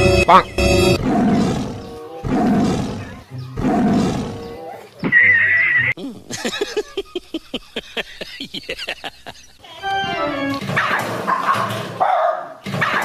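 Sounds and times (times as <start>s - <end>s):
loud animal calls: 1.0s - 6.0s.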